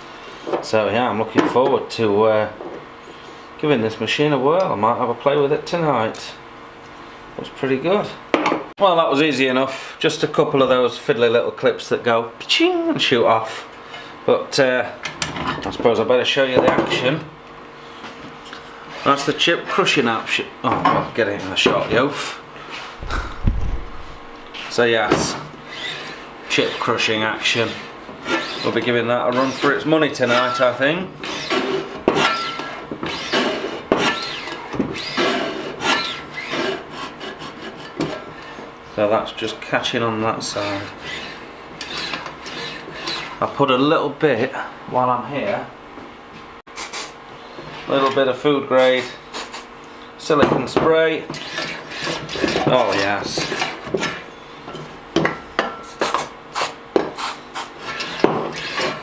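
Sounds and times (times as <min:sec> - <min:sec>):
chip cutter plunger scraping squeal: 0:25.6 - 0:38.5, 0:40.5 - 0:43.4, 0:51.3 - 0:54.4, 0:57.2 - 0:59.0.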